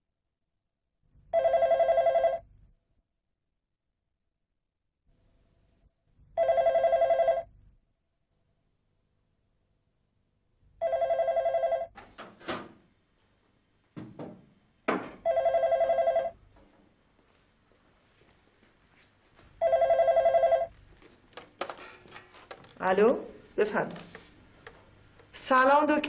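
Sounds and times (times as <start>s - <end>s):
telephone ringing: 1.4s - 2.4s, 6.4s - 7.5s, 10.8s - 11.9s, 15.2s - 16.4s, 19.6s - 20.8s.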